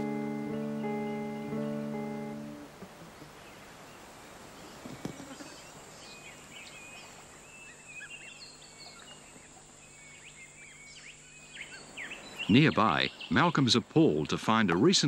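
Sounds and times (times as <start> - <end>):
steady high hiss: 0.0 - 15.0
small birds chirping: 3.0 - 15.0.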